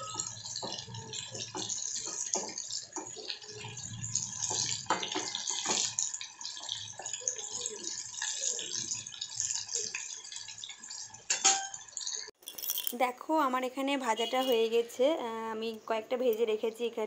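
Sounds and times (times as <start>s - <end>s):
chicken sizzling in hot oil: 0.0s - 12.4s.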